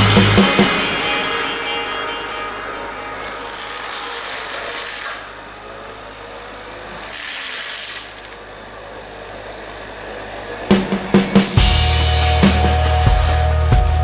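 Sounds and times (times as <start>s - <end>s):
mulcher grinding brush: 0.0s - 8.9s
machine engine running: 0.0s - 14.0s.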